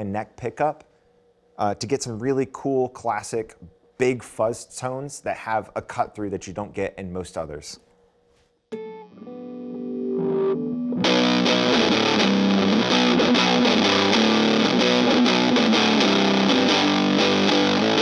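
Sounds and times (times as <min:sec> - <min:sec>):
fuzzed electric guitar riffing: 0:08.8 - 0:18.0.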